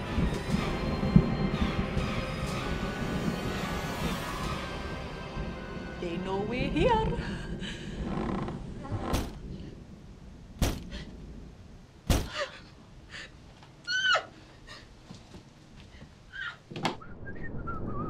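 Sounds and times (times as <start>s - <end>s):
heavy thuds: 6.7s - 9.8s, 10.5s - 12.6s.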